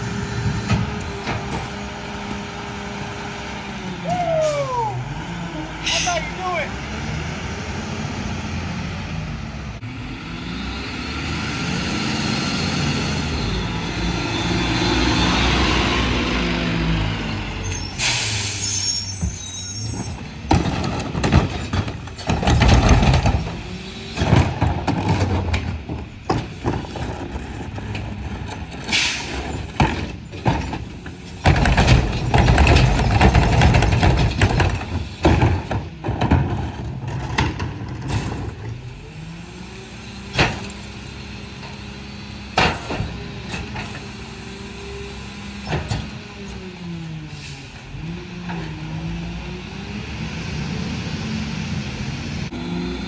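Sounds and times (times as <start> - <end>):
trash carts clanking: 0.0 - 5.0, 13.0 - 49.0
garbage truck engine: 0.0 - 53.0
hydraulics whining: 0.0 - 53.0
air brakes hissing: 17.6 - 20.1, 28.9 - 29.4, 47.3 - 47.8.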